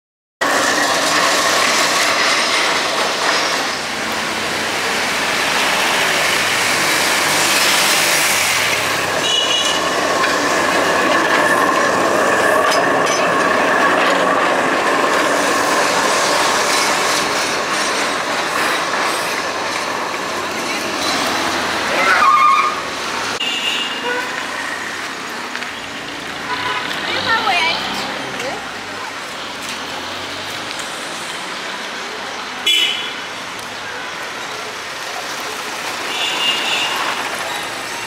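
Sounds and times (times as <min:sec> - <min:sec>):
tram wheels clattering over rails: 0:00.4 - 0:23.4, 0:33.4 - 0:38.0
wheel squeal: 0:20.7 - 0:22.8.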